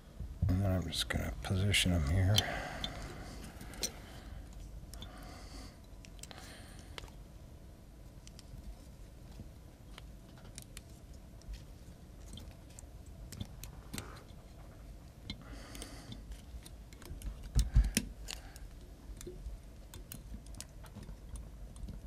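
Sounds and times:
light clicks and ticks: 9.9 - 22.0.

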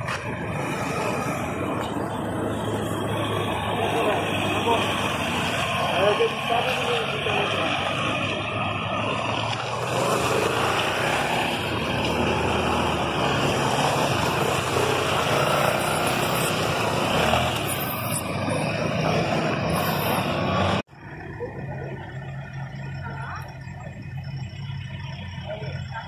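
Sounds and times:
street traffic noise: 0.0 - 26.0
truck driving past: 0.0 - 26.0
motorcycle driving past: 9.0 - 20.8.

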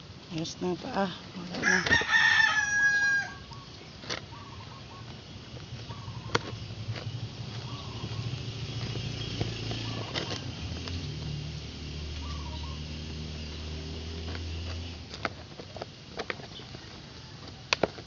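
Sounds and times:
rooster crowing: 1.6 - 3.6, 16.9 - 17.7
chickens clucking: 3.2 - 11.0
low handling rumble: 3.5 - 16.0.

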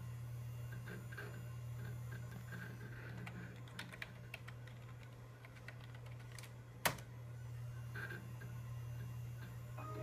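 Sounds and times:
computer hum: 0.0 - 10.0
keyboard keys clicking: 3.7 - 6.5.

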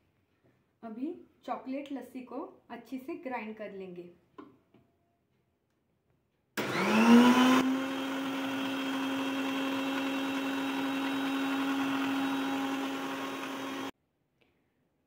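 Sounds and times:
blender motor running: 6.6 - 13.9.

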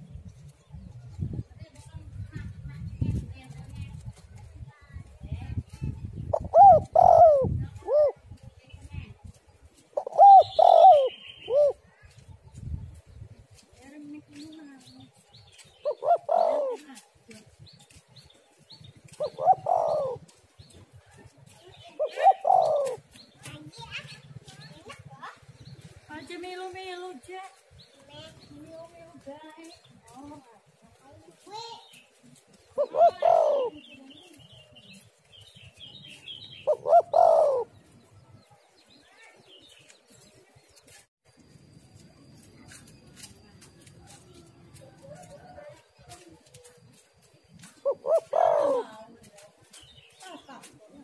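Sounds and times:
small birds chirping: 0.0 - 51.0
dove cooing: 6.3 - 8.4, 9.8 - 11.9, 15.8 - 17.2, 18.9 - 20.7, 21.4 - 23.2, 32.2 - 38.2, 47.7 - 49.4.

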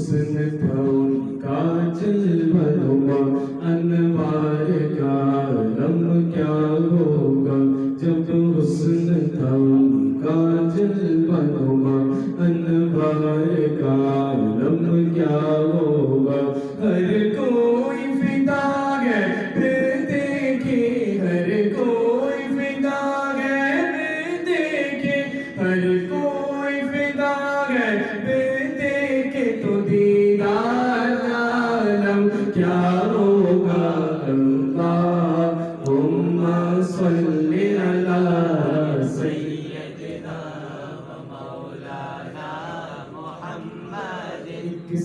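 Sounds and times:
man singing unaccompanied: 0.0 - 45.0
singer breathing: 3.3 - 3.6, 16.5 - 16.8, 25.3 - 25.6, 32.3 - 32.6, 35.5 - 35.8.

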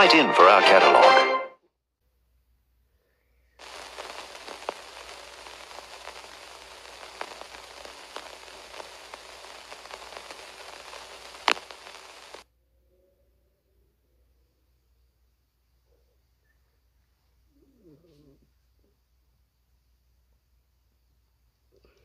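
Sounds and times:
film soundtrack hiss with crackles: 0.0 - 1.4, 2.3 - 22.0.

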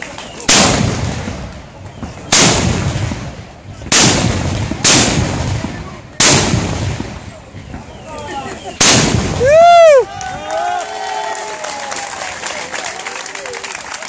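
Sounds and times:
gunpowder mortar bangs: 0.0 - 8.1, 8.7 - 9.6.

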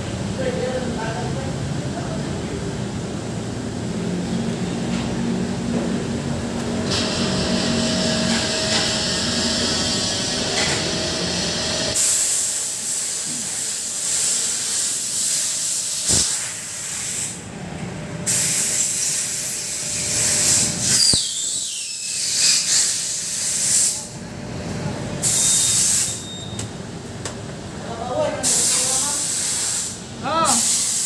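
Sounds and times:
pressurized spray hissing: 11.3 - 17.4, 18.3 - 24.1, 28.4 - 31.0.

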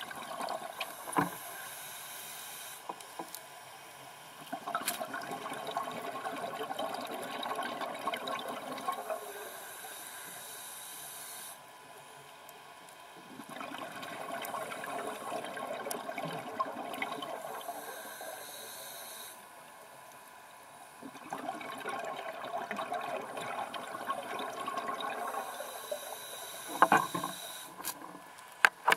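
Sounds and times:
regulator hissing on inhale: 0.7 - 3.0, 9.0 - 11.7, 17.3 - 19.6, 25.2 - 27.9
underwater bubbly exhalation: 4.6 - 9.2, 13.4 - 17.8, 21.0 - 25.7.

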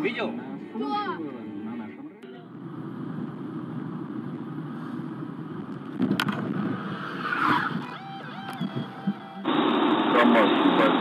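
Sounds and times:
car road and engine noise: 0.0 - 11.0.

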